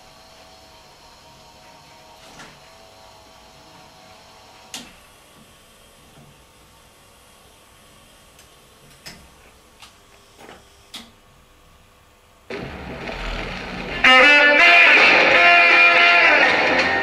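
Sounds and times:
loud guitar music: 0:12.5 - 0:17.0
record surface noise: 0:12.5 - 0:17.0.

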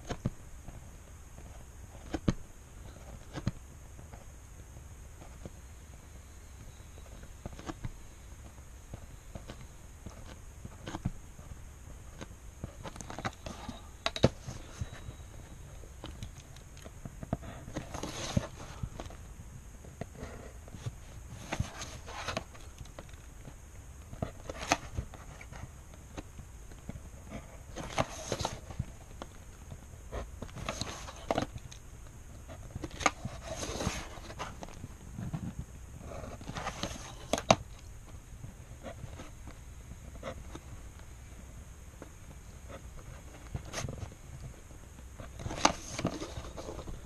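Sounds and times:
paper rustling: 0:12.1 - 0:19.3, 0:19.9 - 0:31.8, 0:32.5 - 0:37.8, 0:45.2 - 0:47.0.

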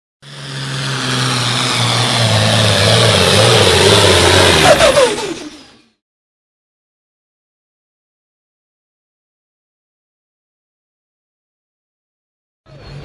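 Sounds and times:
tractor engine running hard: 0:00.2 - 0:06.0, 0:12.7 - 0:13.0.

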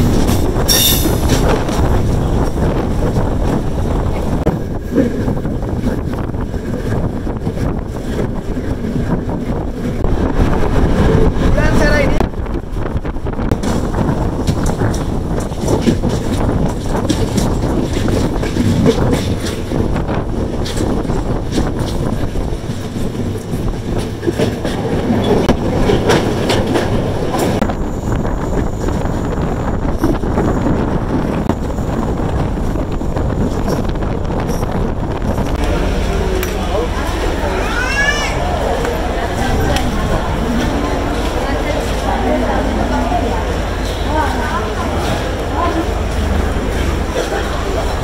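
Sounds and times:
train wheels clacking on rails: 0:00.0 - 0:09.2, 0:13.4 - 0:27.7
train rumbling: 0:00.0 - 0:48.0
wind buffeting microphone: 0:00.0 - 0:48.0.

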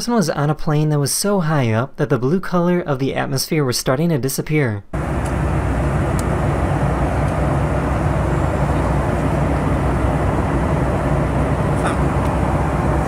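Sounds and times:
airplane cabin engine rumble: 0:05.0 - 0:13.0.

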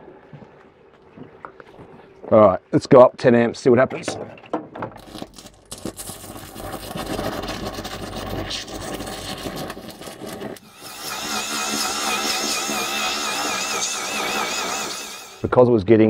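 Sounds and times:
welding arc crackling hiss: 0:05.0 - 0:15.5
wavering high whine: 0:10.6 - 0:15.6.

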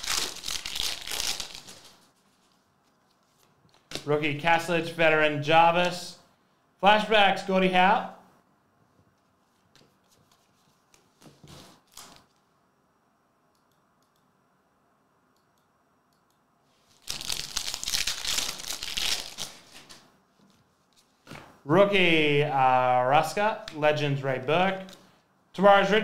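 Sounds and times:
card pack wrapper tearing and crinkling: 0:00.0 - 0:02.0, 0:11.5 - 0:12.4, 0:17.0 - 0:20.0
trading cards rustling: 0:00.0 - 0:04.1, 0:09.4 - 0:12.4, 0:16.8 - 0:21.5.

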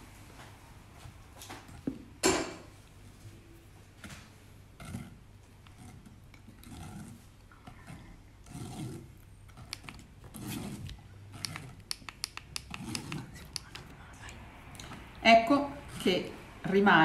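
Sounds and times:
sharp clicks: 0:11.4 - 0:13.9.

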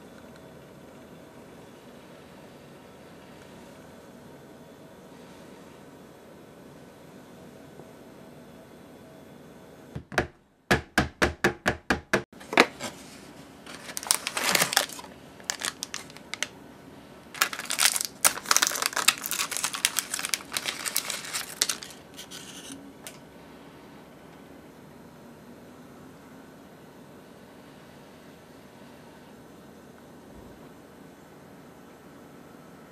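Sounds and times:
biscuit box crinkling and tearing: 0:13.7 - 0:16.5, 0:17.4 - 0:22.8
plastic wrapper crinkling: 0:13.7 - 0:16.6, 0:17.4 - 0:22.8.

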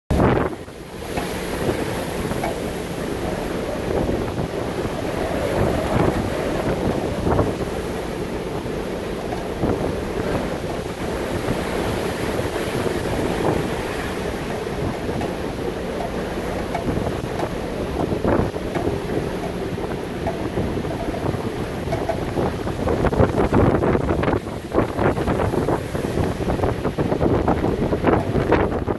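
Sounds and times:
surf breaking against seawall: 0:00.1 - 0:28.9
wind buffeting microphone: 0:00.1 - 0:28.9.

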